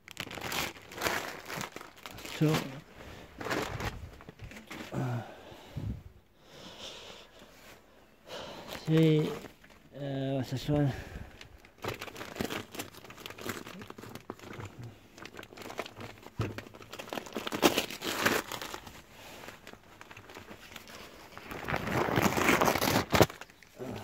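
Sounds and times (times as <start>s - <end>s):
wrapping paper crinkling and tearing: 0.0s - 5.0s, 11.4s - 24.0s.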